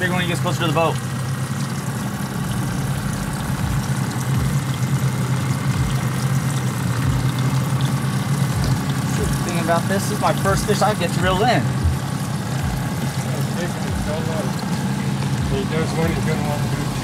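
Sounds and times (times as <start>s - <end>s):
trolling motor humming: 0.0s - 17.0s
short low thumps: 2.2s - 6.2s, 6.9s - 7.7s, 8.4s - 9.4s, 10.5s - 13.2s.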